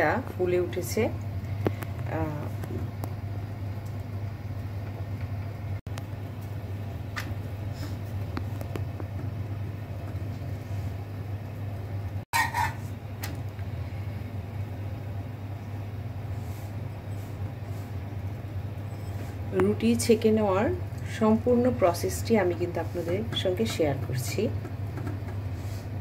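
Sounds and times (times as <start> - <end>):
gas stove hum: 0.0 - 26.0
scrape on iron pan: 12.3 - 13.0.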